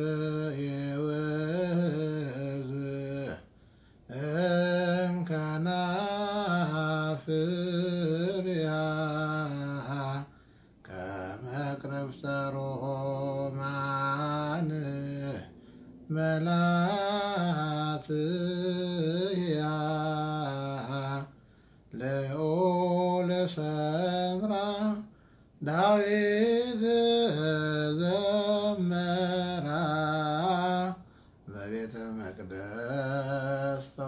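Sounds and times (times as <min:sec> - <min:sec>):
man chanting unaccompanied: 0:00.0 - 0:03.5, 0:04.1 - 0:34.0.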